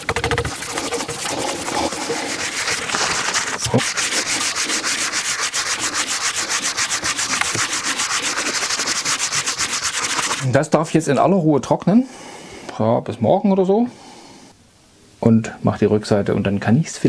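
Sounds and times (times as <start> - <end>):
hand scrubbing wood panel: 0.0 - 10.4.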